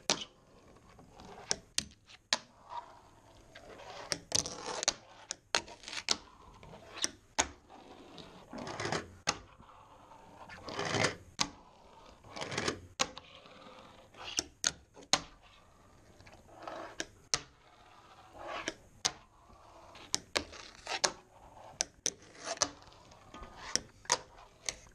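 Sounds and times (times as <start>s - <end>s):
fingerboard rolling on wood: 15.1s - 24.9s.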